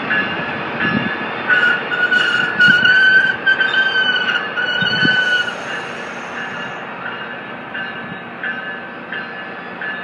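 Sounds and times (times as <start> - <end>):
train coaches rumbling on rails: 0.0 - 10.0
high wheel squeals: 1.5 - 6.8.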